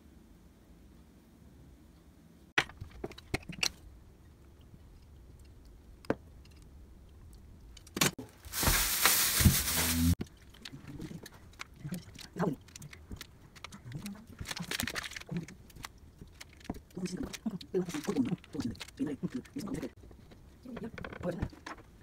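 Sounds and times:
plastic bag crinkling: 8.3s - 19.4s.

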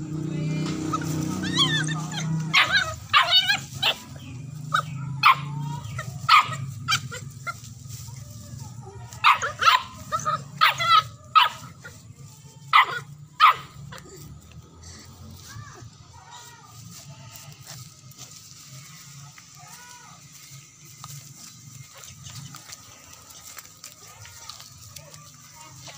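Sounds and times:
dog barking and yipping: 0.9s - 7.7s, 9.0s - 12.0s, 12.7s - 14.2s.

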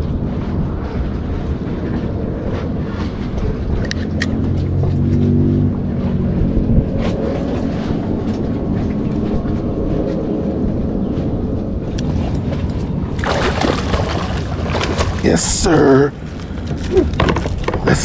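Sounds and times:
traffic rumbling on bridge: 0.0s - 18.0s
water noise: 0.0s - 18.0s
wind: 0.0s - 18.0s.

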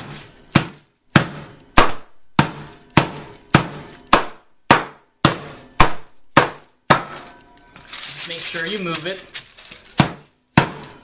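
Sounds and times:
frying pan pounding meat: 0.0s - 7.2s, 9.9s - 11.0s.

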